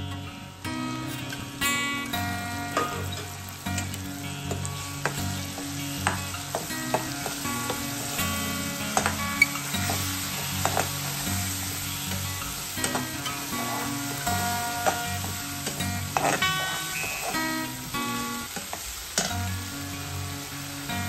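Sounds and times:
paste sizzling in hot oil: 0.1 - 21.0
metal spoon scraping pan: 12.8 - 17.4.

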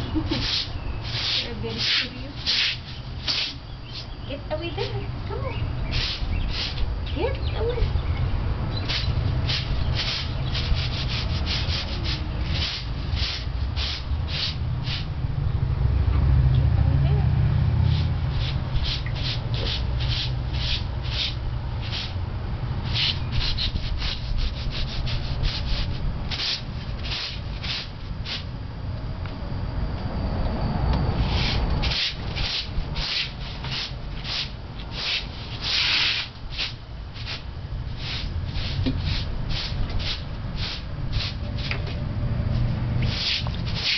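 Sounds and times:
broom sweeping concrete: 0.0 - 4.2, 5.8 - 7.9, 8.8 - 15.1, 17.8 - 22.2, 22.8 - 28.5, 31.2 - 41.8, 42.6 - 43.9
steady low rumble: 0.0 - 43.9.

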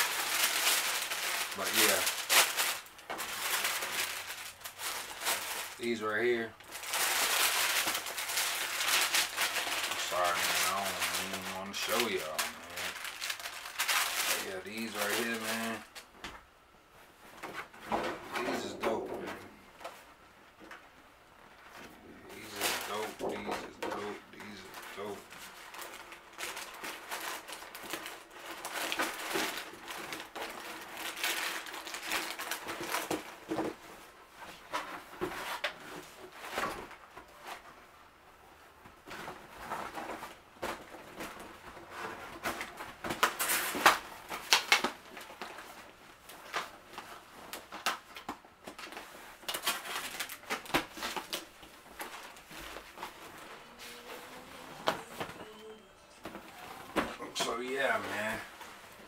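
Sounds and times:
cardboard and paper rustling: 0.0 - 16.1, 21.5 - 59.0.

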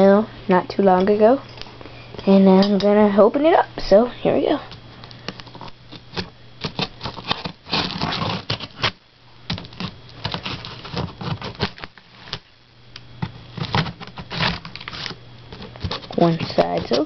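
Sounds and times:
cardboard rustling: 5.5 - 12.5, 13.2 - 17.0
scissors cutting packing tape: 6.6 - 9.0, 13.6 - 17.0.

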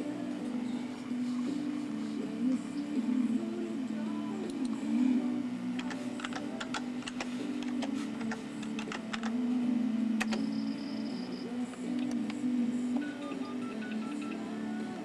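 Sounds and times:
computer keyboard typing: 5.8 - 9.4, 10.2 - 10.5.

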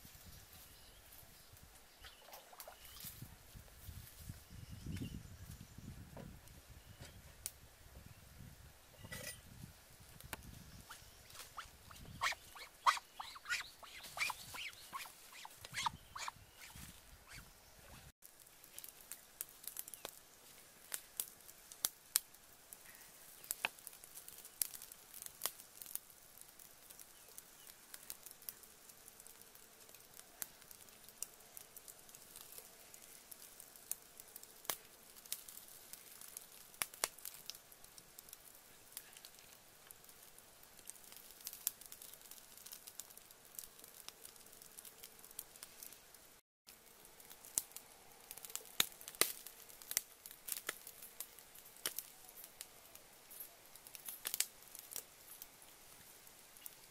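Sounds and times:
fire crackling: 9.5 - 56.9
sharp pops of fire: 36.3 - 37.6, 47.2 - 52.1, 53.3 - 55.0.

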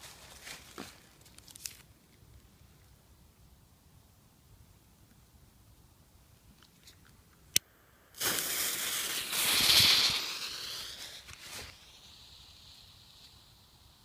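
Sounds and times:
firecracker fuse hissing: 7.9 - 14.0.

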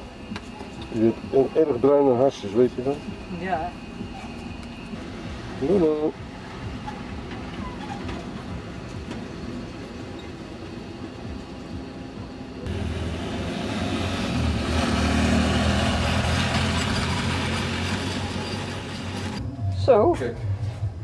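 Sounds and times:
motorcycle trike engine passing: 12.7 - 19.4.

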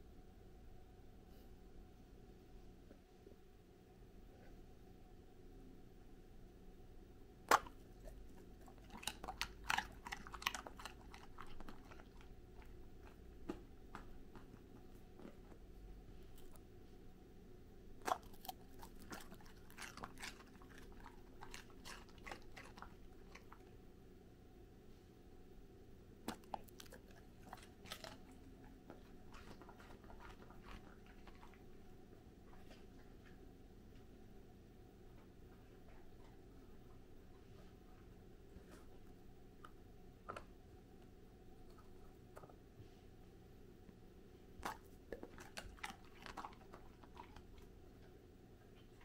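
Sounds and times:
dog biting carrot crack: 7.5 - 7.9, 8.6 - 14.5, 18.0 - 23.6, 26.3 - 31.6, 44.6 - 47.7
dog crunching carrot: 7.5 - 15.6, 18.0 - 23.8, 26.2 - 31.9, 44.6 - 49.0.

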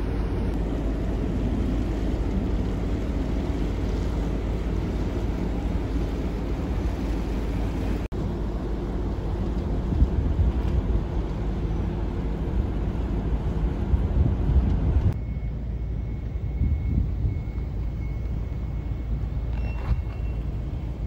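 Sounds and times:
low rumble: 0.0 - 21.0
wind buffeting microphone: 9.0 - 15.2, 16.2 - 21.0.

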